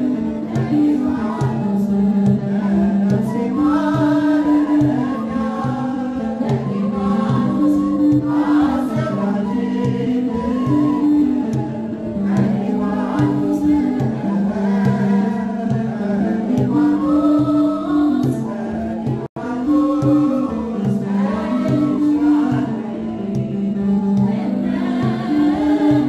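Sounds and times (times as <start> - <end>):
choir singing a hymn: 0.0 - 26.0
flute: 0.0 - 26.0
lyre: 0.0 - 26.0
even drumbeat: 0.1 - 26.0.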